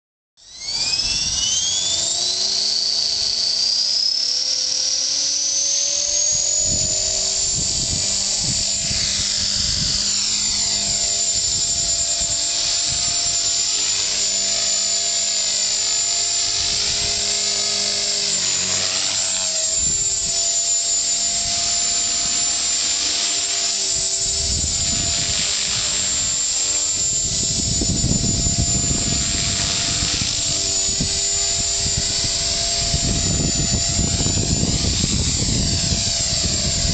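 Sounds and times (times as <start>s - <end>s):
rc helicopter motor whine: 0.4s - 36.9s
wind buffeting microphone: 6.6s - 13.1s, 24.2s - 26.4s, 27.0s - 36.9s.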